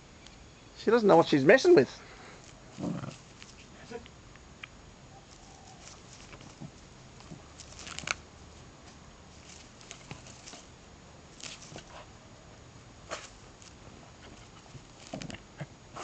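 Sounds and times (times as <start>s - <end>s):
dog pawing in dry straw: 2.5s - 3.9s, 5.2s - 10.7s, 11.3s - 12.1s, 13.0s - 15.4s.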